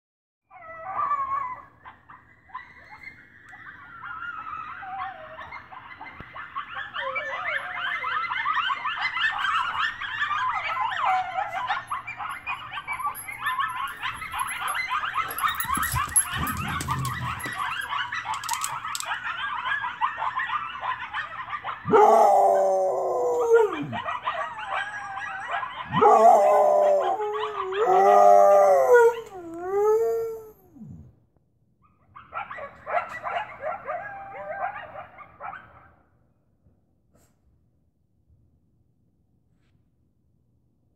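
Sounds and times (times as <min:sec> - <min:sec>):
coyotes yipping and howling: 0:00.5 - 0:30.9, 0:31.8 - 0:36.0
husky howling: 0:02.9 - 0:31.1, 0:32.4 - 0:35.6.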